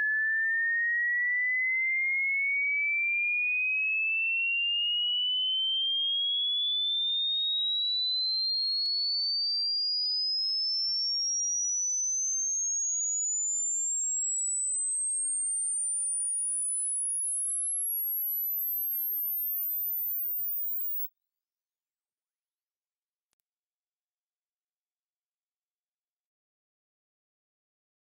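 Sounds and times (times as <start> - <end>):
sine tone sweeping upward: 4.4 - 21.1.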